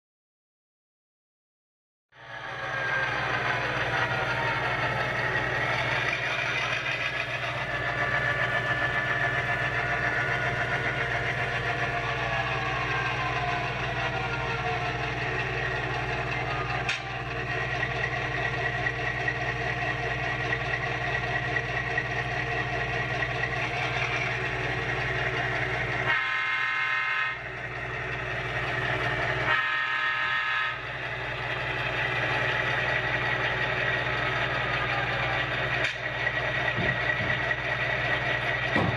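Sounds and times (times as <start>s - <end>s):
diesel locomotive engine running: 2.1s - 38.9s
locomotive horn blasts: 26.1s - 27.4s, 29.4s - 30.8s.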